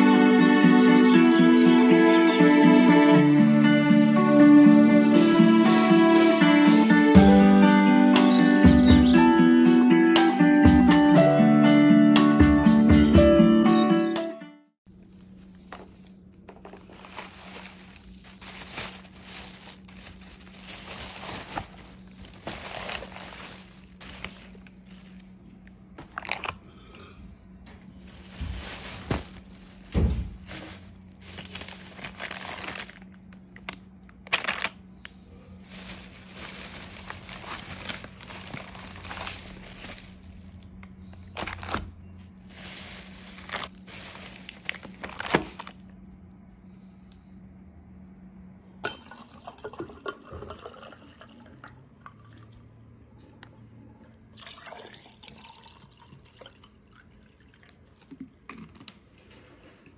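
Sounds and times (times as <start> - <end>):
packaging crinkling and rustling: 14.9 - 26.6, 27.8 - 46.0
steady low hum: 14.9 - 48.8.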